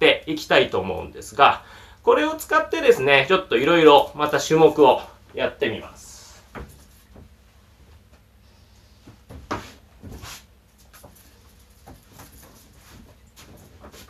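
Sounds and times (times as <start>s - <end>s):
rustling on exercise mat: 9.0s - 14.0s.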